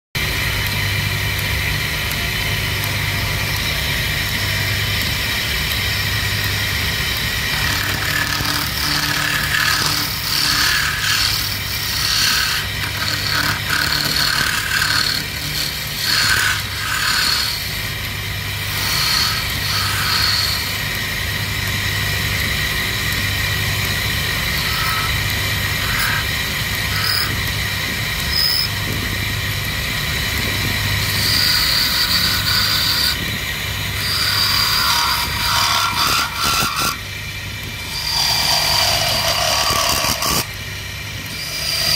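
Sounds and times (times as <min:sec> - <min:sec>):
wood lathe humming: 0:00.2 - 0:41.9
chisels scraping spinning wood: 0:06.5 - 0:21.7, 0:22.4 - 0:28.8, 0:29.9 - 0:37.0, 0:37.8 - 0:40.6, 0:41.2 - 0:41.9.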